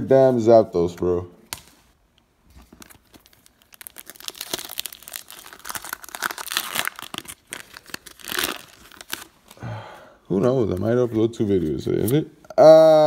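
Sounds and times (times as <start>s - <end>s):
foil wrapper crinkling: 2.6s - 9.6s.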